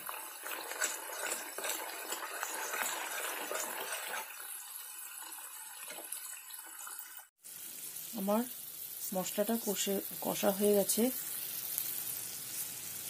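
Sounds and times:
spatula scraping pan: 0.0 - 4.5
paste sizzling in hot oil: 0.0 - 13.0.

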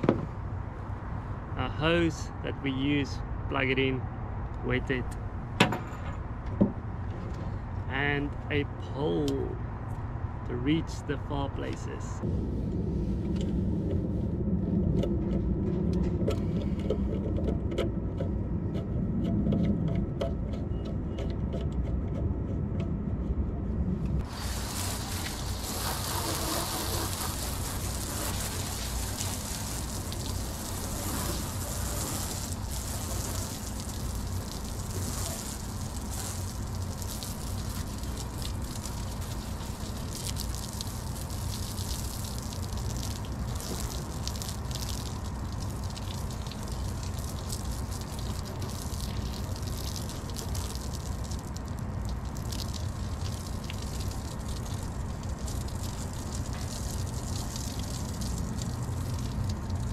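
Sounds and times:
low rumble: 12.0 - 25.0
hose spraying water: 24.2 - 59.9.

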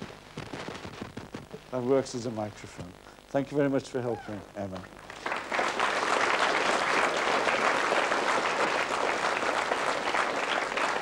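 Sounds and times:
audience applause: 5.0 - 11.0.

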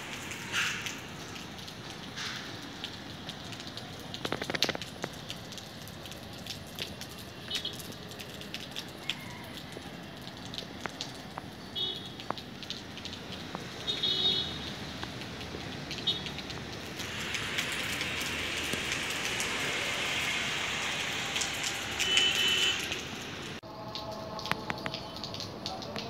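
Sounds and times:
crackling ticks: 0.2 - 14.0, 23.9 - 26.0
steady hiss: 17.0 - 22.6.

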